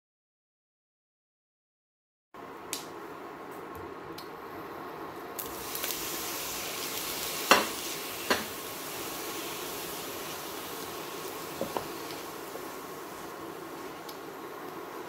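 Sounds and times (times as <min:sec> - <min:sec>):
tomatoes sizzling in a frying pan: 0:05.3 - 0:15.0.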